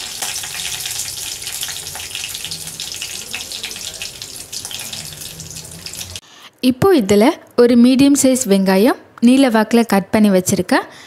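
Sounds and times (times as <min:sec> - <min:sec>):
spices sizzling in hot oil: 0:00.0 - 0:06.2.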